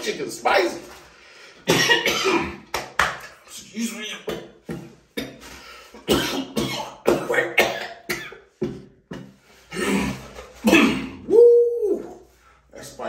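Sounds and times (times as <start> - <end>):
man coughing: 1.6 - 2.7, 6.0 - 8.4, 9.7 - 11.2.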